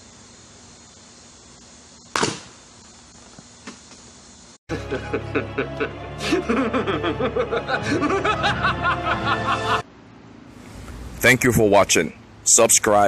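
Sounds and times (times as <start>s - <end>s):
music: 4.7s - 9.8s
snickering laugh: 4.7s - 9.8s.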